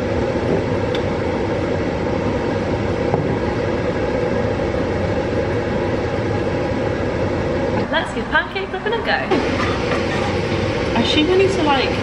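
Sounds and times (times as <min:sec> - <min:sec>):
rumbling machine noise: 0:00.0 - 0:12.0.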